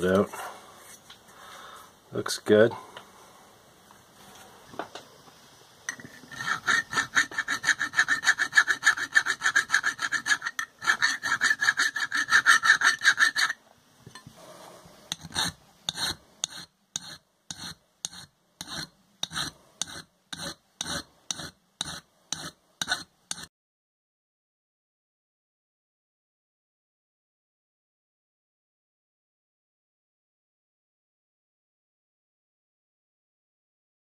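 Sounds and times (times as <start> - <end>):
hand file rasping on metal: 5.9 - 13.6, 15.1 - 23.5.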